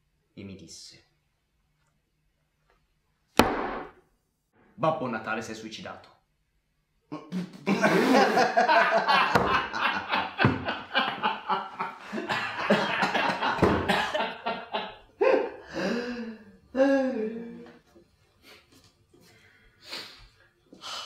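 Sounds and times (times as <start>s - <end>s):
men laughing loudly: 7.6s - 16.2s.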